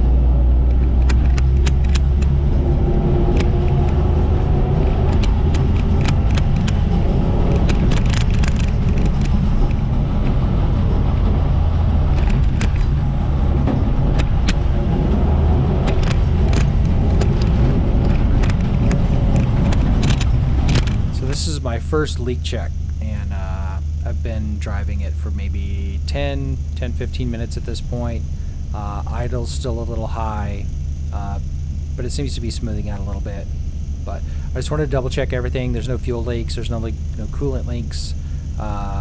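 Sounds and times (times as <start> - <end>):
truck engine and road rumble: 0.0 - 39.0
light rattles and jingling clicks: 0.7 - 2.7, 3.3 - 11.2, 12.1 - 13.0, 15.7 - 23.0.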